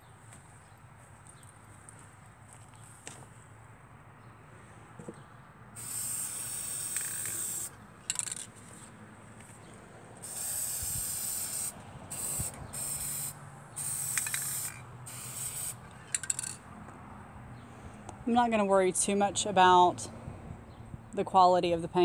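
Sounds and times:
spray paint can hissing: 5.8 - 8.4, 10.2 - 16.6.

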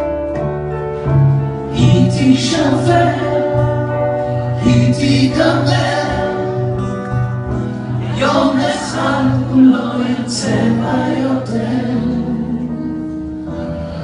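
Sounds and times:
keyboard: 0.0 - 14.0
man and woman singing: 1.7 - 6.9, 7.9 - 13.2.

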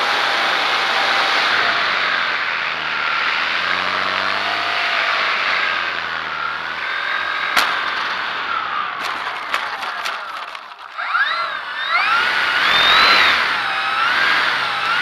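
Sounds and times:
faint motor tone: 0.0 - 15.0
wind rushing past model plane: 0.0 - 15.0
wheels knocking on grass: 3.7 - 15.0.

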